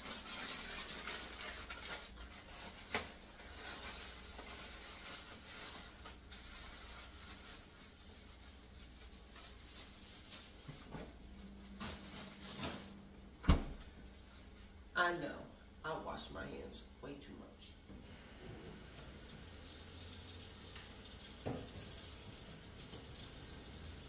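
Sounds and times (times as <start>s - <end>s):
plastic bag rustling: 0.0s - 13.0s
faint steady hum: 2.2s - 24.0s.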